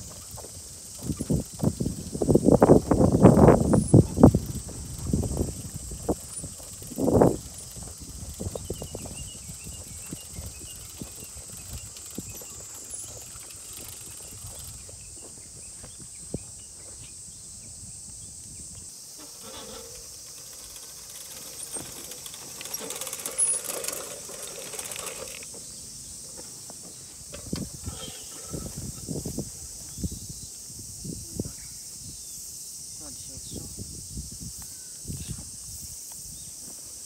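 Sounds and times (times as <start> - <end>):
seeder wheels clicking: 0.0 - 15.2, 19.0 - 29.2
steady high hiss: 0.0 - 37.0.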